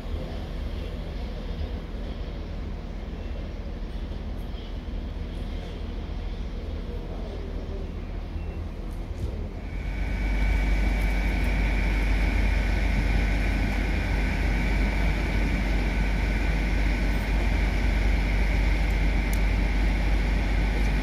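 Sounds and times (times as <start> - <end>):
diesel train engine drone: 0.0 - 21.0
high-pitched whine: 9.5 - 21.0.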